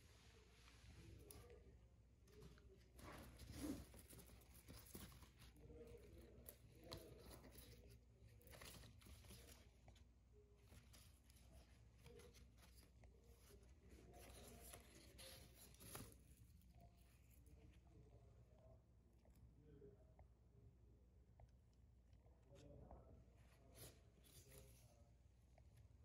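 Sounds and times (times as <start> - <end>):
faint rustles: 0.0 - 19.7.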